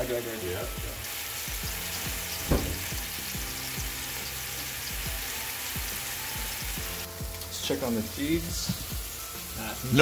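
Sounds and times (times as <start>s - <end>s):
meat sizzling in a pan: 0.0s - 10.0s
short knock: 2.5s - 2.9s.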